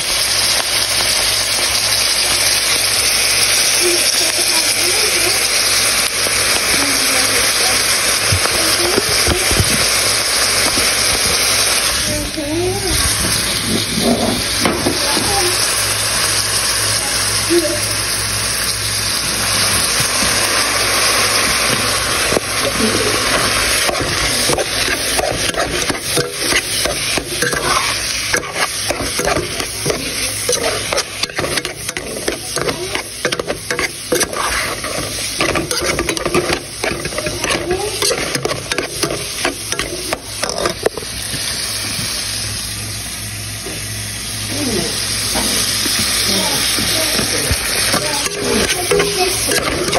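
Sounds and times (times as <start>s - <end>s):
meat sizzling in a pot: 0.0s - 49.9s
metal spoon scraping and clinking: 22.3s - 41.0s, 46.7s - 49.9s.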